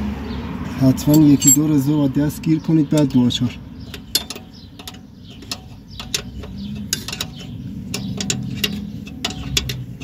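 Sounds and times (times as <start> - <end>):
wrench metal clicks: 3.9 - 10.0.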